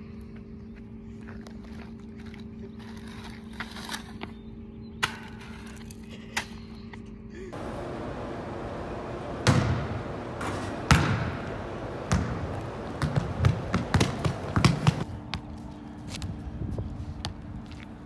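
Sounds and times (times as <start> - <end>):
basketball hitting wall: 7.8 - 15.0
basketball bouncing on hardwood floor: 9.4 - 15.0.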